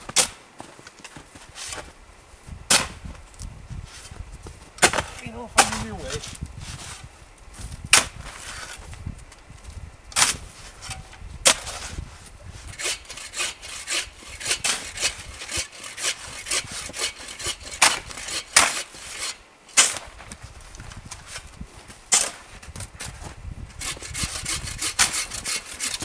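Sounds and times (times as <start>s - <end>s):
hand saw cutting log: 12.6s - 20.0s, 23.8s - 26.0s.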